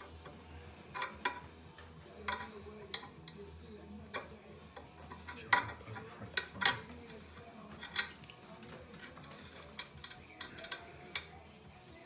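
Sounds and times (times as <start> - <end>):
spanner clicking on metal fittings: 0.9 - 1.4, 2.3 - 3.4, 7.8 - 8.4, 9.0 - 11.3.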